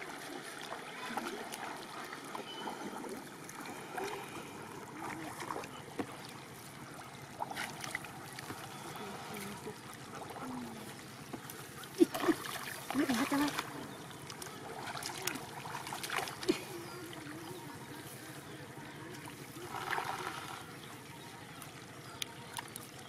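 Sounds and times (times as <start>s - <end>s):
shallow water sloshing: 0.0s - 23.0s
sharp water splashes: 11.9s - 16.7s.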